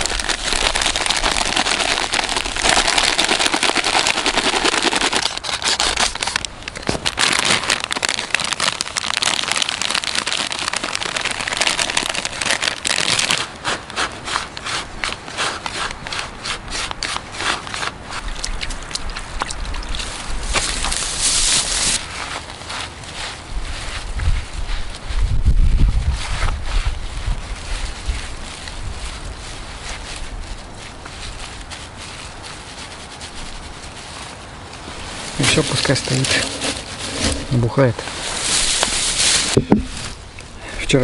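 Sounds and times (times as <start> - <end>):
dry groundbait pouring into bowl: 0.0 - 6.4
foil packets crinkling: 0.0 - 18.0, 19.3 - 25.1, 26.2 - 40.2.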